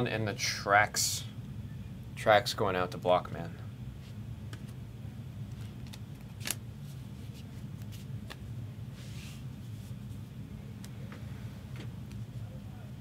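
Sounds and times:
steady low hum: 0.0 - 13.0
cards sliding together: 5.5 - 6.6
card snaps: 5.8 - 6.6.

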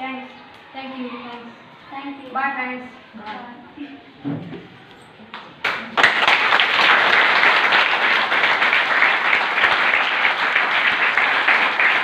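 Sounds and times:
crowd applauding: 5.6 - 12.0.

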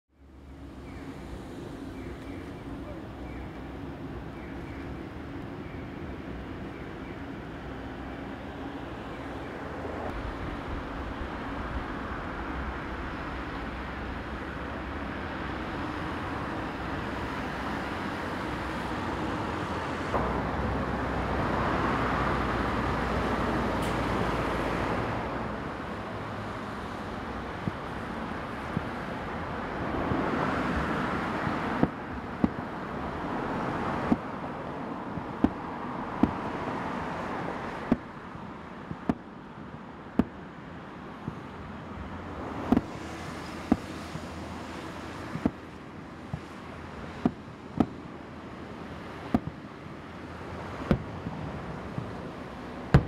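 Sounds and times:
cars passing on street: 0.1 - 53.0
distant fireworks bangs: 27.3 - 29.2, 30.8 - 33.2, 33.8 - 34.4, 35.1 - 38.2, 38.8 - 39.4, 40.1 - 40.5, 42.6 - 48.1, 49.2 - 49.8, 50.7 - 53.0.

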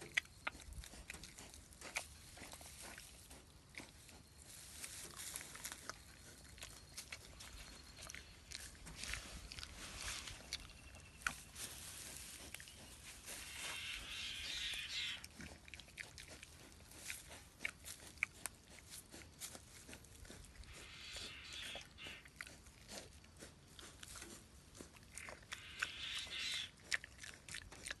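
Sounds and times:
piglet chewing and smacking: 0.0 - 28.0
rustling in dry grass: 0.9 - 15.5.

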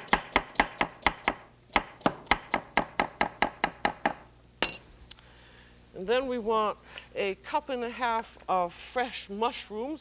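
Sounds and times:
knife chopping on wooden board: 0.0 - 4.8.

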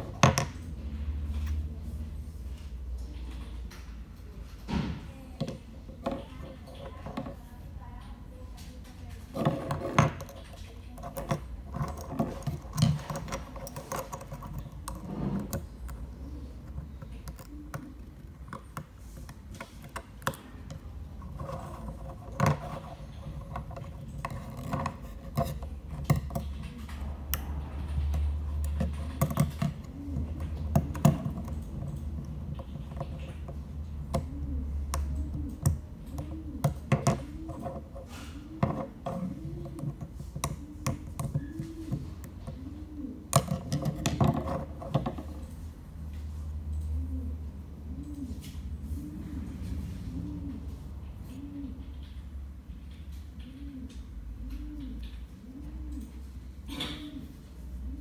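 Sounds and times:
small parts clicking and scraping: 8.6 - 34.4.

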